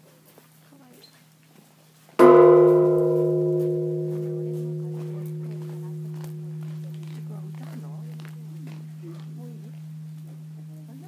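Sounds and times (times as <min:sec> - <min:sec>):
large temple bell ringing: 0:02.2 - 0:11.0.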